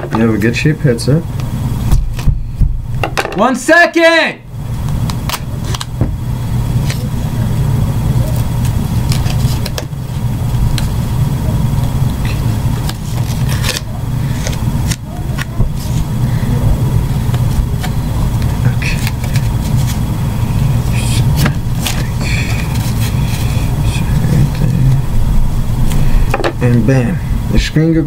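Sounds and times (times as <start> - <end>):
steady low rumble: 0.0 - 3.2, 4.4 - 28.0
duct tape crackling and ripping: 4.8 - 6.0, 8.2 - 11.0, 12.2 - 16.2, 17.3 - 25.0.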